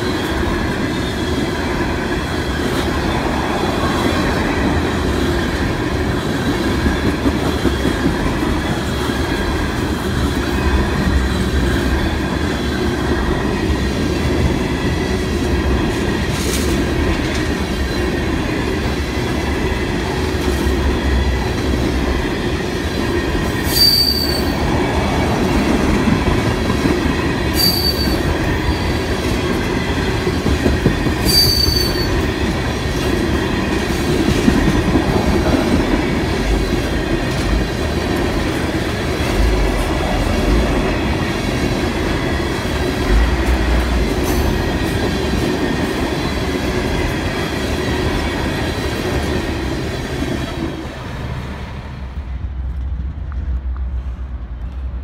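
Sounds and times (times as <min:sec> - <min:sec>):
train wheels rumbling on rail: 0:00.0 - 0:55.0
high wheel squeals: 0:23.6 - 0:24.8, 0:27.5 - 0:29.0, 0:31.2 - 0:32.3.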